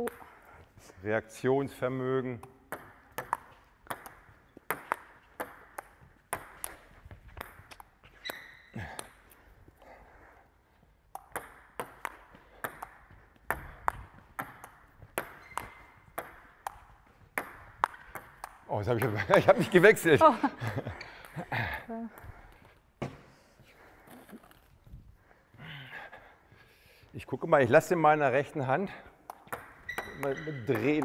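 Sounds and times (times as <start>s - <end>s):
table tennis ball hits: 0.0s - 0.4s, 2.4s - 9.3s, 11.1s - 19.4s, 29.2s - 31.0s.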